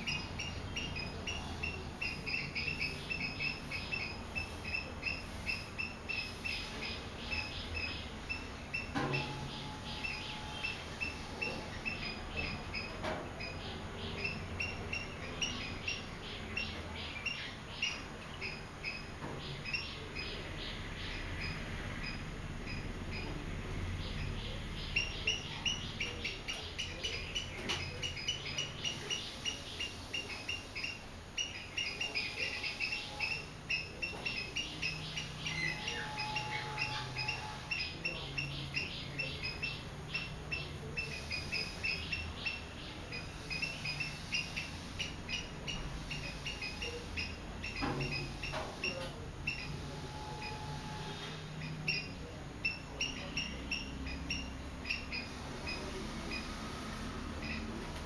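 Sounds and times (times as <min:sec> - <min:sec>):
swallows twittering: 0:00.0 - 0:56.6.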